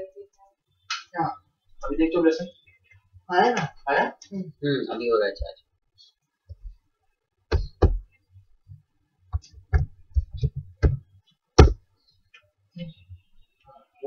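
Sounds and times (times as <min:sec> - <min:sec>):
irregular knocks and thumps: 0:07.5 - 0:11.9.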